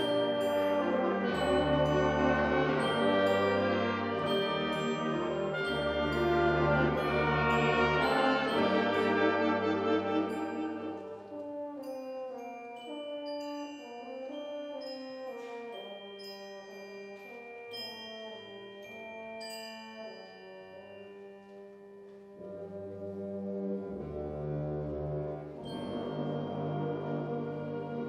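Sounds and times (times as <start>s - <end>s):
held brass chords: 0.0s - 12.0s
mallet percussion notes: 0.0s - 28.0s.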